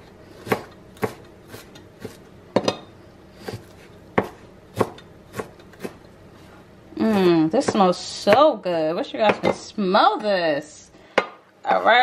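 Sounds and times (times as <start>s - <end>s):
knife chopping on cutting board: 0.4s - 2.8s, 3.4s - 6.0s.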